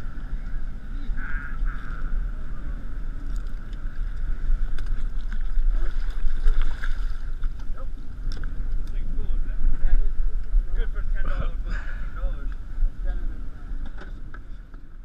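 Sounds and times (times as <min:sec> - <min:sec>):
wind buffeting microphone: 0:00.0 - 0:15.0
water slapping boat hull: 0:03.2 - 0:09.0.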